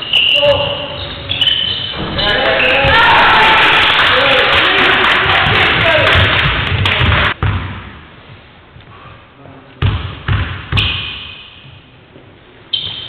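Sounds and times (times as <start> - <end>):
basketball bouncing on wooden floor: 5.4 - 7.9, 9.8 - 11.0.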